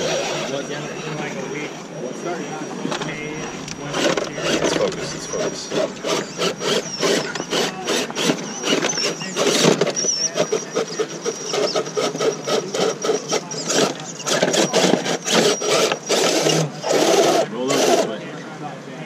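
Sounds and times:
tires clattering against stone: 0.0s - 18.1s
high drivetrain whine: 0.0s - 18.6s.

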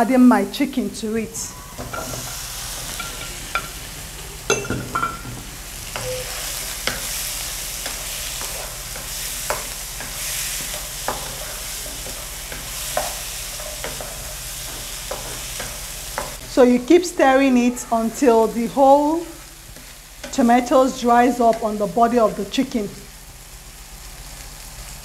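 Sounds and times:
chicken sizzling in sauce: 1.5s - 25.0s.

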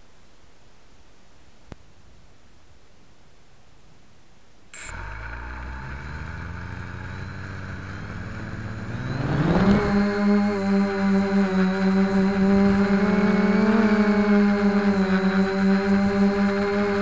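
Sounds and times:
quadcopter motors and propellers: 4.8s - 17.0s.

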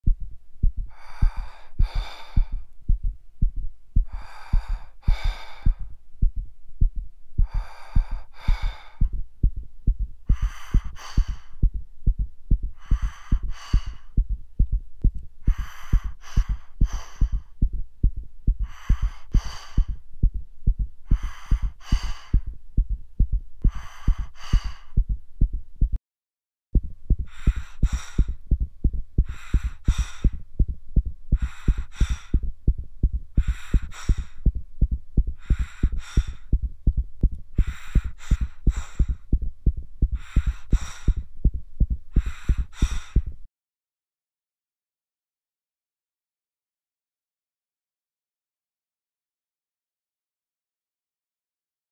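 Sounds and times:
fast heartbeat thumping: 0.0s - 26.0s, 26.8s - 43.5s
faint low hum: 0.1s - 26.0s, 26.8s - 43.5s
heavy breathing: 0.6s - 14.8s, 15.4s - 25.9s, 27.1s - 43.5s.

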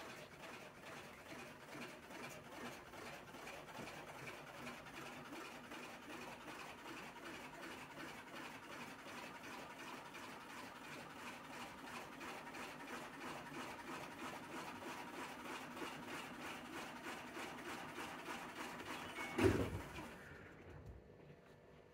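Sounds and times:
washing machine drum spinning: 15.6s - 20.8s.

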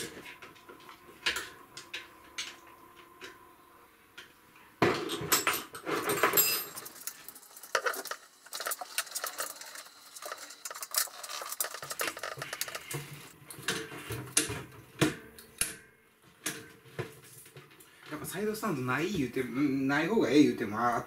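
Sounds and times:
metallic clinks and rattles: 5.0s - 13.3s.

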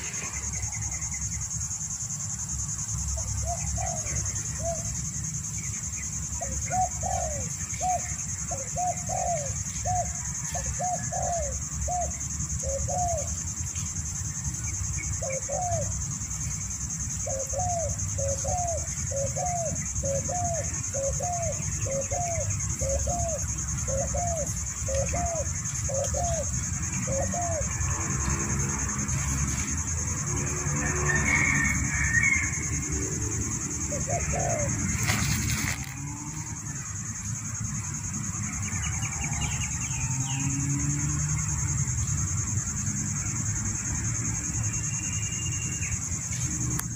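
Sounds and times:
dove cooing: 3.2s - 5.0s, 6.2s - 13.4s, 15.0s - 16.1s, 17.1s - 37.0s.

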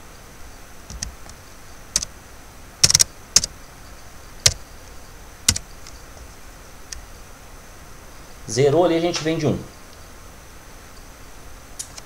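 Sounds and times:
keyboard keystrokes: 2.8s - 3.5s
mouse clicks: 2.8s - 3.5s.

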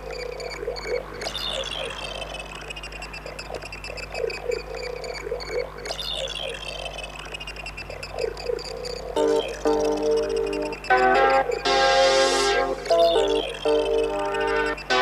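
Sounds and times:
electronic warbling chirps: 0.0s - 15.0s
rapid high-pitched blips: 0.0s - 15.0s
electronic falling sweep: 9.2s - 15.0s.

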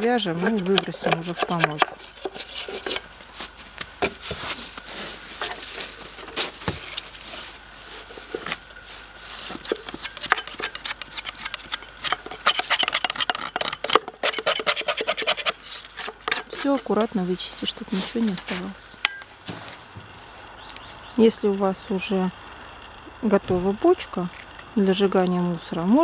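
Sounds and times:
spatula scraping wooden birdhouse: 0.0s - 3.1s, 9.2s - 18.9s.

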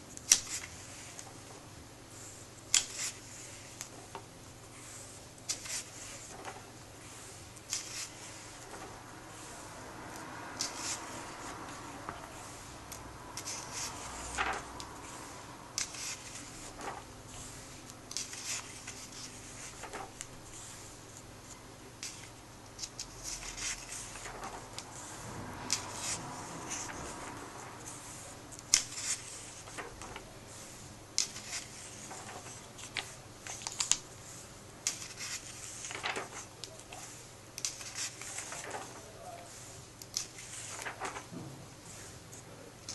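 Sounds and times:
pages turning rustling: 0.2s - 1.6s, 2.2s - 42.9s
page slapping flat: 10.1s - 17.1s, 18.1s - 20.3s, 22.8s - 24.9s, 31.2s - 34.0s, 34.9s - 39.0s, 40.0s - 41.5s.

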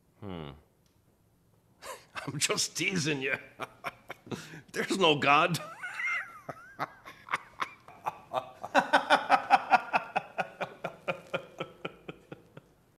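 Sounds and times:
man laughing heartily: 1.8s - 12.8s.

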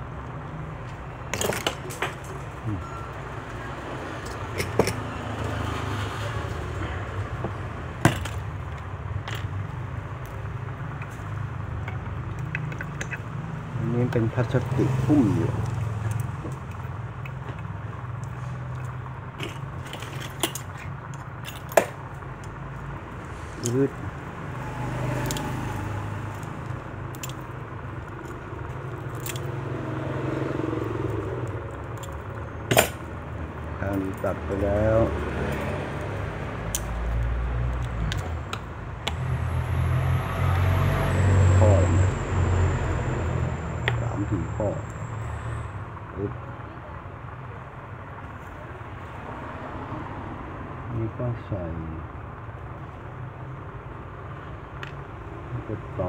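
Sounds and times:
pliers clicking on metal bracelet: 25.2s - 25.5s
sharp metallic clicks: 35.5s - 39.2s.

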